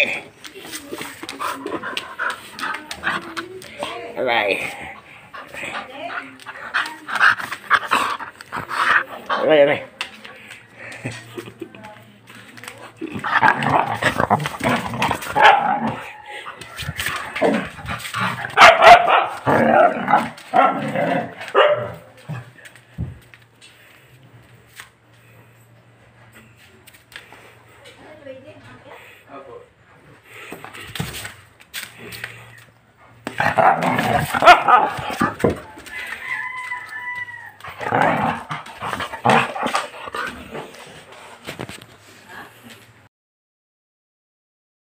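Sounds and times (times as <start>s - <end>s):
dog growling and barking: 13.1s - 16.2s, 17.1s - 22.5s, 33.3s - 35.6s, 37.6s - 40.8s
dog barking: 15.4s - 15.9s, 18.5s - 19.5s, 21.5s - 22.0s, 34.4s - 35.2s.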